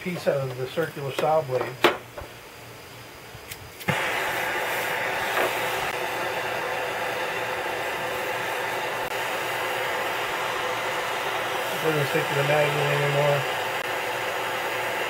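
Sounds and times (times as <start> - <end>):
torch flame hissing: 0.0 - 15.0
gas torch lighting click: 3.4 - 6.0.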